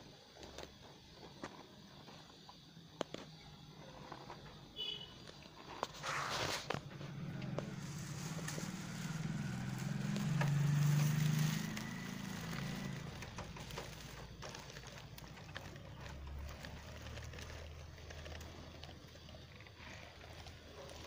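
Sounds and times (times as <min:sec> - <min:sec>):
straw rustling in hay: 0:05.8 - 0:21.0
low motor hum: 0:06.7 - 0:21.0.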